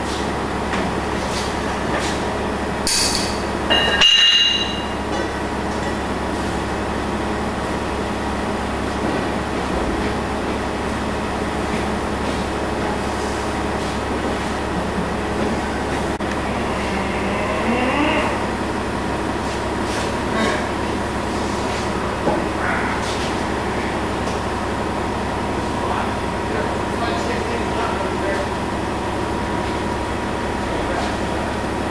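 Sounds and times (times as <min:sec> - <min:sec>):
metal clank ringing: 0:02.9 - 0:05.0
rising whine: 0:16.1 - 0:19.1
mechanical drone: 0:16.2 - 0:19.0.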